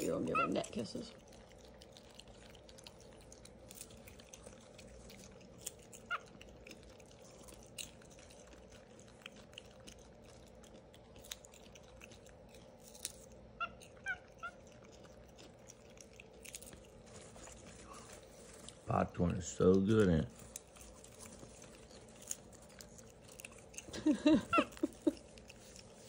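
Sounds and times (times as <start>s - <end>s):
monkey squeaking: 0.0s - 1.0s, 13.6s - 14.6s.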